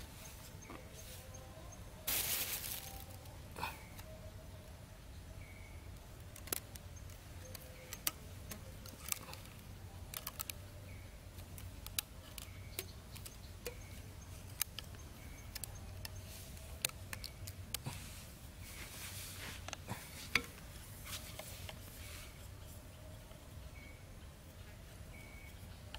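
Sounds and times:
bamboo sticks clicking: 6.2 - 18.0, 19.6 - 21.8
faint high chirps: 22.6 - 25.8.

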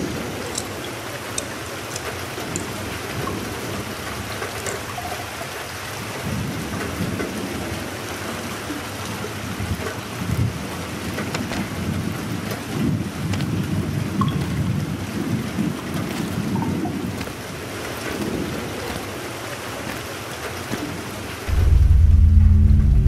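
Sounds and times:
water dripping: 0.0 - 7.7, 8.6 - 23.0
steady rain: 0.0 - 23.0
thunder rumbling: 21.4 - 23.0.

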